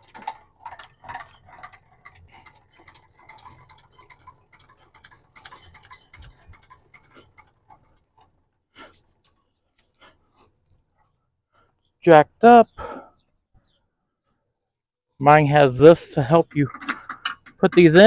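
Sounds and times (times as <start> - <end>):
jack gearing clicking: 0.0 - 8.5, 15.8 - 18.0.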